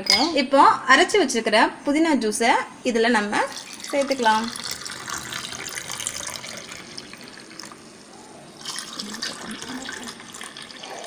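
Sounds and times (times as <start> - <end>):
juice pouring into glass of ice: 3.5 - 7.9, 8.6 - 11.0.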